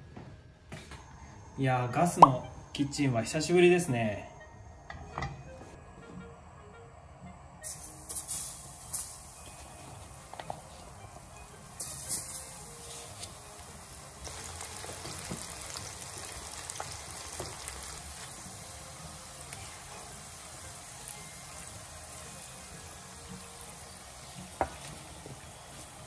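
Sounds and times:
food deep-frying in oil: 0:11.6 - 0:26.0.

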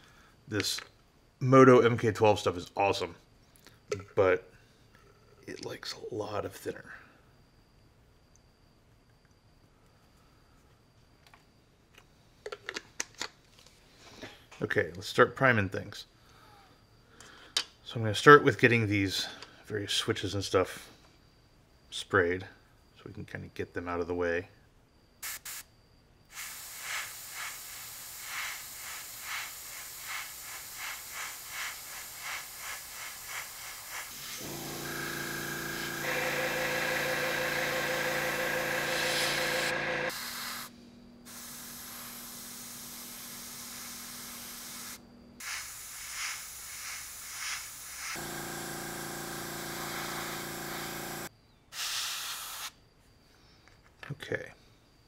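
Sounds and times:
airbrush spraying hiss: 0:25.2 - 0:25.7, 0:26.3 - 0:52.8
air compressor motor humming: 0:34.0 - 0:40.7, 0:48.0 - 0:51.3.

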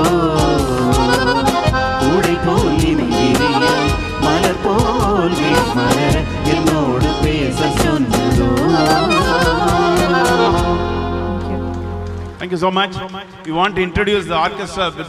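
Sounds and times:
steady drum beat: 0:00.0 - 0:11.0
live band playing: 0:00.0 - 0:13.5
wavering melody line: 0:00.7 - 0:12.0.

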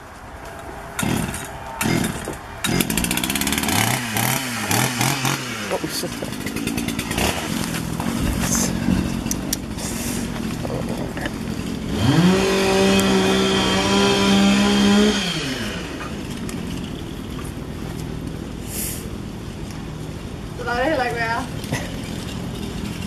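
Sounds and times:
low engine hum: 0:00.0 - 0:23.0
chainsaw revving: 0:01.0 - 0:17.2.

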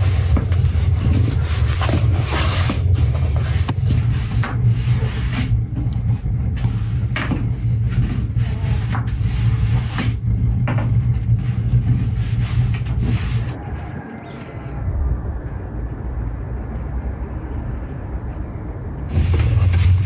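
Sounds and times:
rolling pin rumbling on wooden board: 0:00.0 - 0:13.6.

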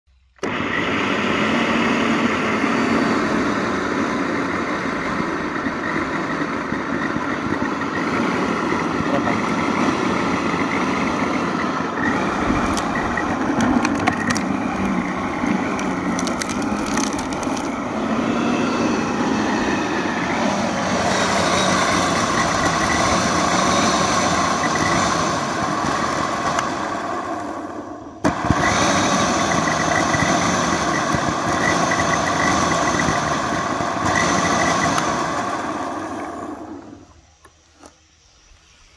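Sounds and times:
electric lawn scarifier running: 0:00.1 - 0:37.9
sharp clicks and cracks: 0:12.4 - 0:17.8.

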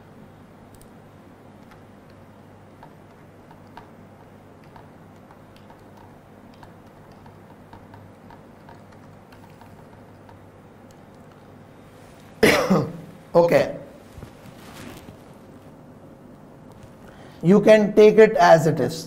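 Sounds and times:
low steady hum: 0:00.0 - 0:19.0
laptop keys tapping: 0:00.7 - 0:11.6.

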